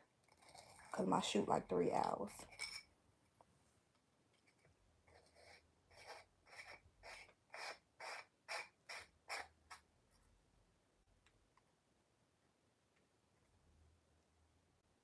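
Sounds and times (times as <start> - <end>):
scratchy rubbing strokes: 4.5 - 9.6.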